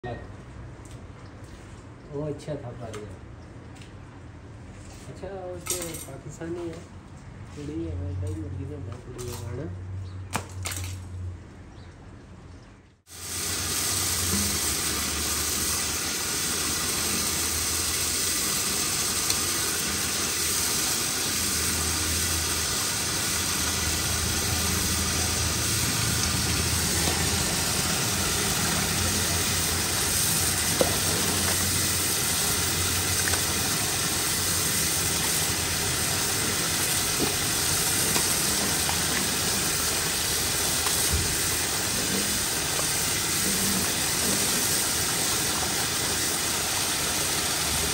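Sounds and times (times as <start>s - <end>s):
hose water gushing onto tiles: 13.1s - 47.9s.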